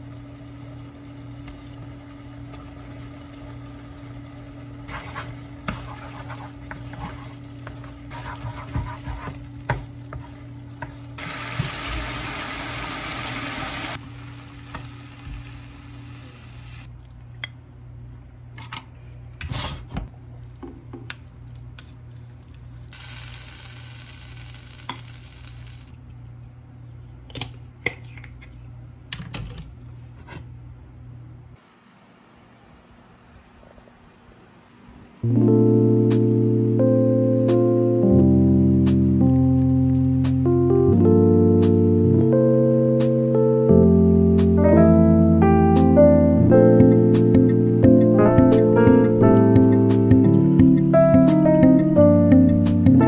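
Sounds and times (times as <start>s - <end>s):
pasta sizzling in a frying pan: 0.0s - 16.9s, 22.9s - 25.9s.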